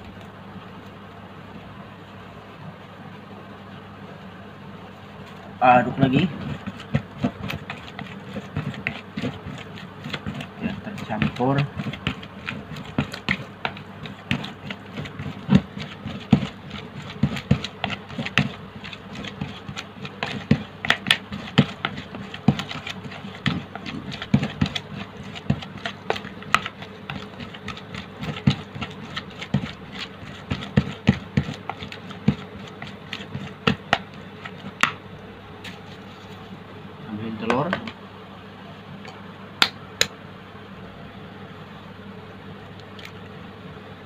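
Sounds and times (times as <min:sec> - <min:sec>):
plastic spoon scraping plastic basin: 0:05.3 - 0:34.8.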